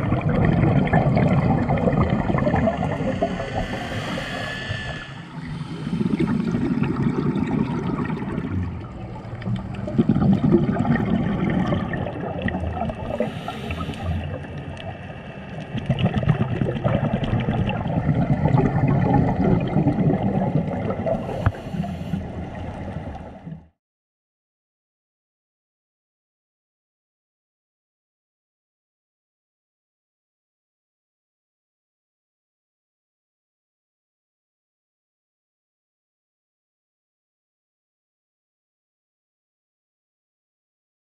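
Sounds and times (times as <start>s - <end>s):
underwater bubbles gurgling: 0.0s - 23.8s.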